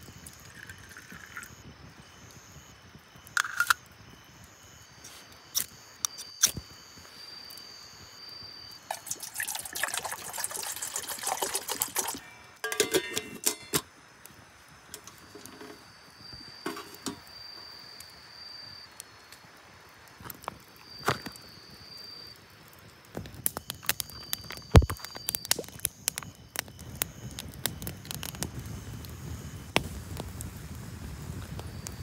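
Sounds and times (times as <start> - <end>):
small objects clicking and knocking: 3.3 - 3.8, 23.2 - 26.3.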